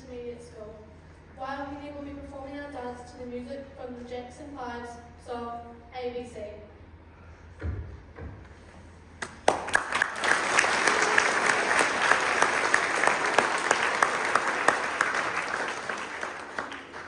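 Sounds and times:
children applauding: 9.2s - 17.0s.

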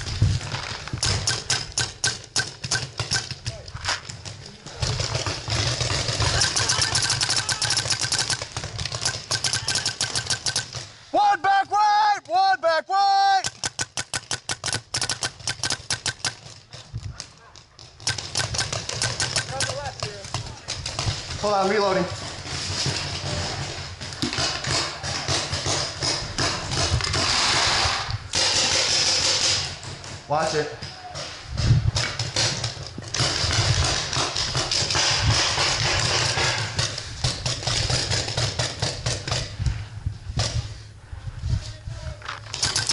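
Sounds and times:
paintball marker firing: 5.2s - 10.9s, 13.4s - 16.6s, 18.0s - 20.1s.

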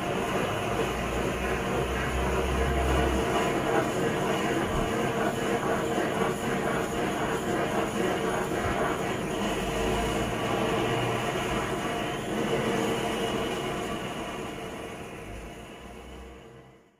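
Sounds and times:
gas burner rushing: 0.0s - 16.8s.

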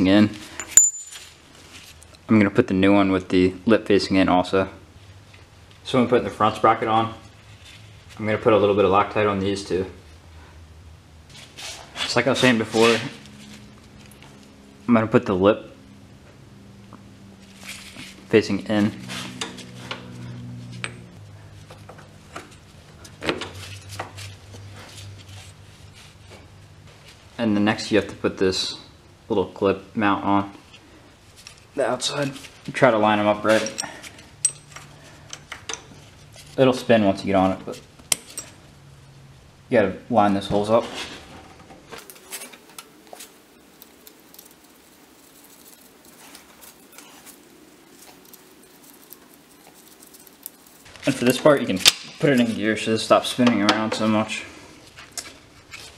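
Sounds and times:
metal clinks and clicks: 0.6s - 1.3s, 33.5s - 35.8s
low hum: 10.0s - 27.3s
metallic clicks and scrapes: 42.0s - 52.6s.

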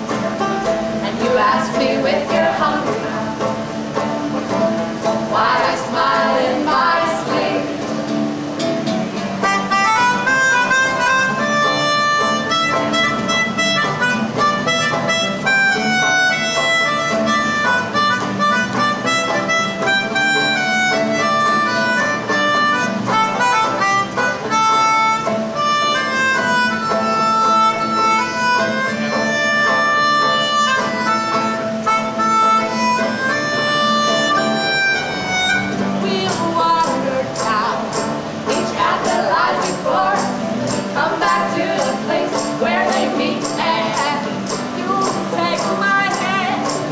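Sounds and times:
acoustic guitar: 0.0s - 46.9s
person singing: 1.0s - 3.6s, 5.3s - 8.1s, 36.0s - 46.9s
melodica solo: 9.4s - 46.9s.

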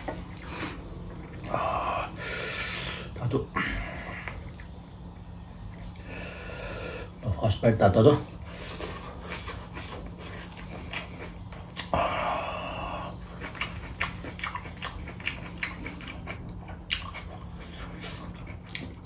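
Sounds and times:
wet chewing and lip smacks: 4.2s - 4.8s, 9.2s - 12.0s, 13.2s - 19.0s.

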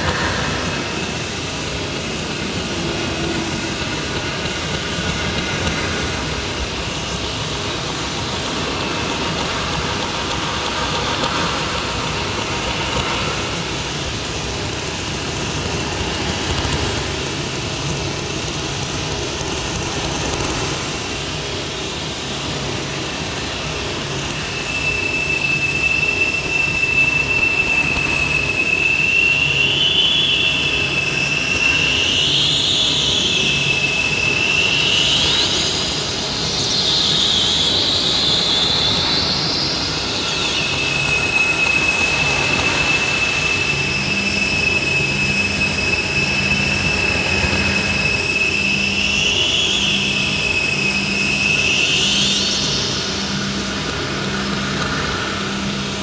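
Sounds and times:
thin high whistle: 24.0s - 55.9s.

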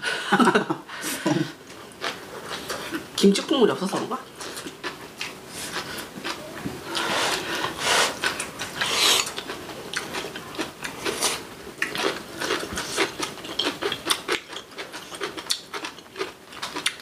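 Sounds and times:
chewing and mouth smacks: 4.3s - 17.0s.

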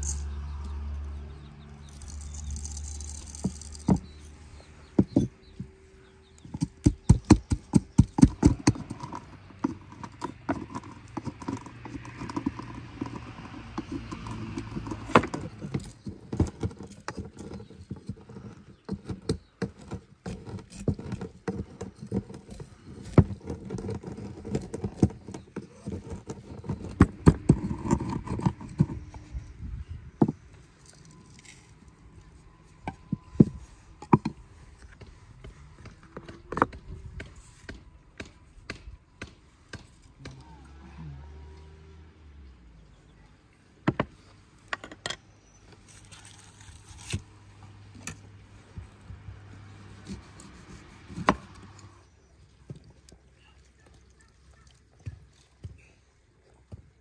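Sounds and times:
sharp knocks and taps: 6.4s - 22.4s.

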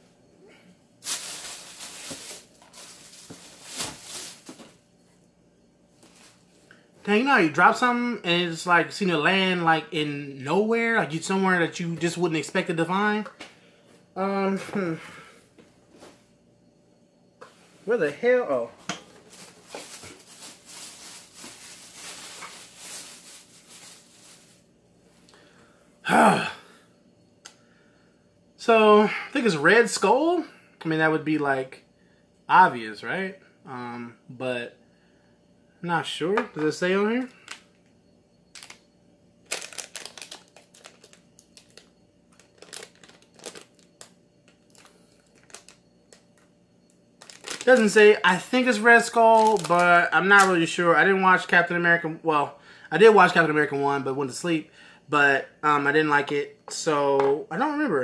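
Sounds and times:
packaging crinkling: 1.0s - 4.7s, 19.2s - 24.6s, 38.5s - 38.8s, 39.4s - 46.4s, 47.2s - 48.5s, 49.3s - 50.6s
rustling and rubbing on fabric: 19.2s - 24.7s.

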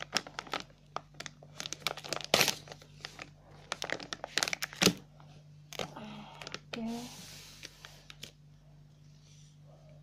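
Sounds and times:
plastic pouch crinkling: 0.0s - 5.0s.

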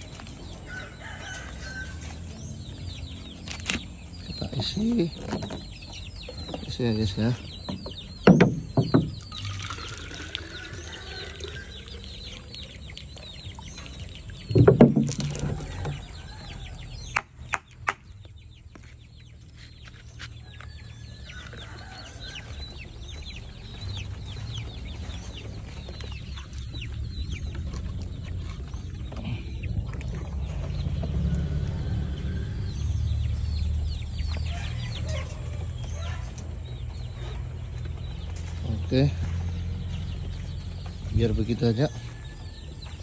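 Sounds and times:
chickens clucking: 0.0s - 43.0s
loud knock: 8.2s - 9.2s, 14.6s - 15.3s.

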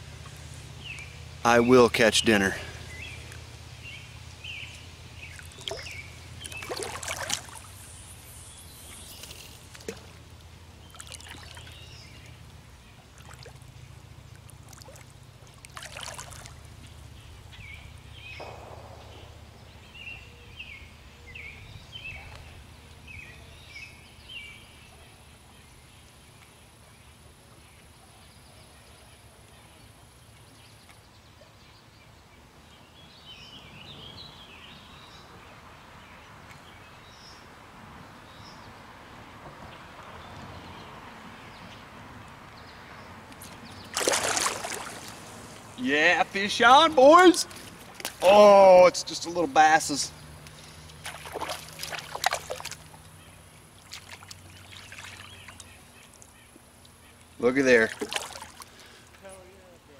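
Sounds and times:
faint water at riverbank: 0.0s - 59.9s
short bird chirps: 5.6s - 9.8s.

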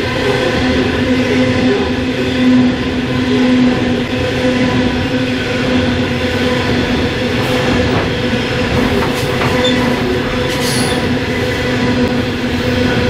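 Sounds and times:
train wheels rumbling on rail: 0.0s - 13.0s
high wheel squeals: 9.5s - 11.9s.

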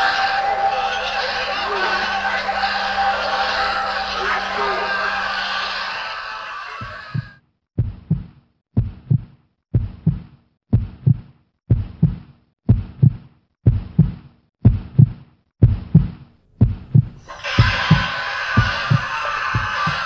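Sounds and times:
heartbeat thumps: 9.8s - 17.2s.

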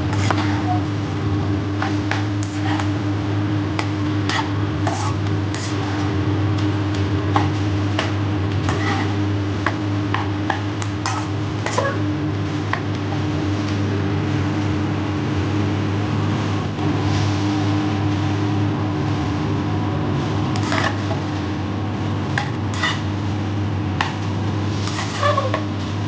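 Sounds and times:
steady low hum: 0.0s - 26.0s
spatula scraping frying pan: 0.1s - 0.9s, 1.7s - 3.0s, 4.0s - 5.9s, 7.3s - 12.1s, 20.6s - 21.1s, 22.7s - 23.1s, 24.8s - 25.8s.

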